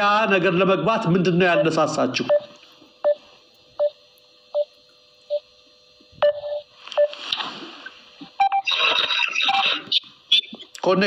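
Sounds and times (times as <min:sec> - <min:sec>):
short electronic beeps: 0:08.4 - 0:09.8.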